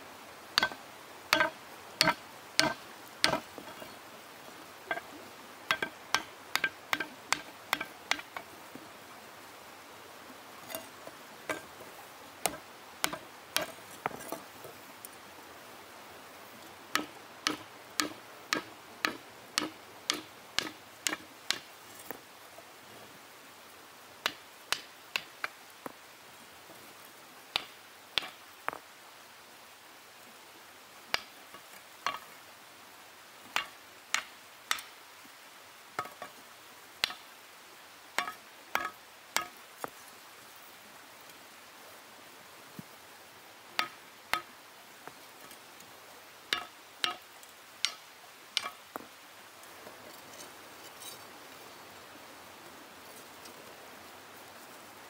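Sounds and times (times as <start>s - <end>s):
stone striking hot iron: 0.6s - 4.0s, 4.9s - 5.1s, 5.7s - 8.5s, 10.7s - 11.8s, 12.4s - 14.5s, 16.9s - 22.1s, 27.6s - 28.8s, 33.6s - 34.9s, 38.2s - 39.6s, 43.8s - 44.5s, 46.5s - 47.2s, 48.6s - 48.8s.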